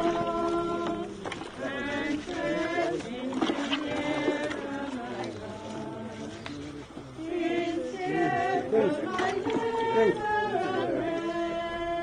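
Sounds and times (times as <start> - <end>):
group singing together: 0.0 - 12.0.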